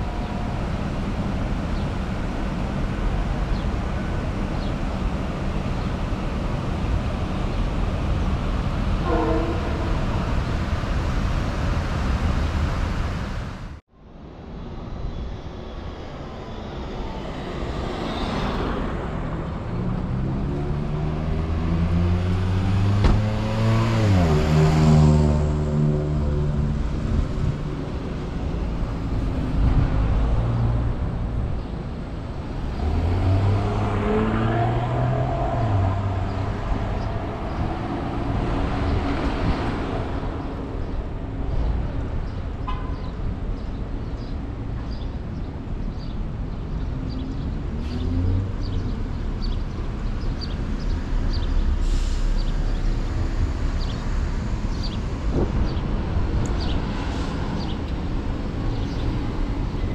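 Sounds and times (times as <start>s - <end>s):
road and wind rumble: 0.0s - 59.9s
motor vehicles passing: 16.2s - 42.4s, 46.0s - 59.9s.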